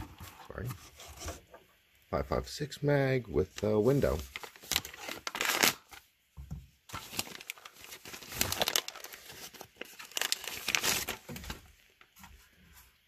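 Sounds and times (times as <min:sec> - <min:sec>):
plastic packaging crinkling: 0:03.4 - 0:06.1, 0:06.9 - 0:12.0.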